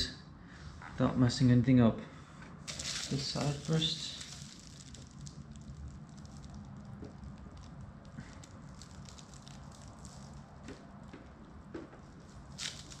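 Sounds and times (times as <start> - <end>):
plastic wrap crinkling: 2.6 - 13.0.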